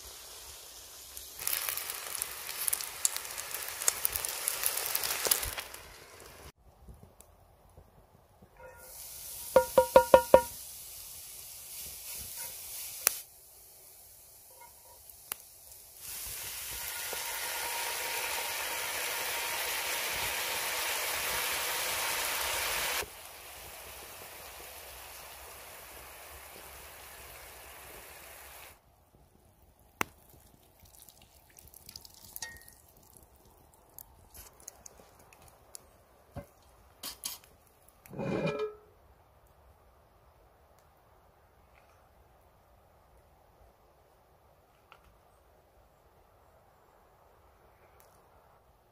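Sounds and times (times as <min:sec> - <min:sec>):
onion sizzling in hot oil: 0:00.0 - 0:06.5, 0:08.7 - 0:28.8, 0:31.8 - 0:35.0
quick metallic tapping: 0:09.6 - 0:10.6.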